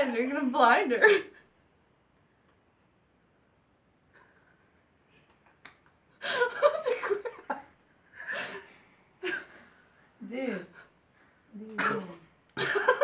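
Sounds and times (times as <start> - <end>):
girls laughing: 6.2 - 9.6, 12.6 - 13.0.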